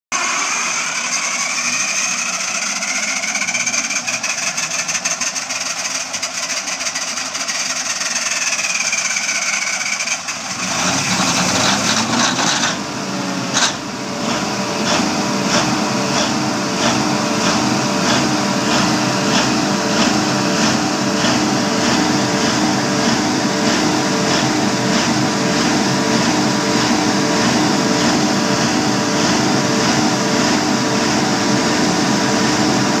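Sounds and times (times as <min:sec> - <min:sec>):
diesel generator running: 0:00.1 - 0:33.0
diesel generator cranking: 0:00.2 - 0:31.9
engine firing crack: 0:08.2 - 0:33.0.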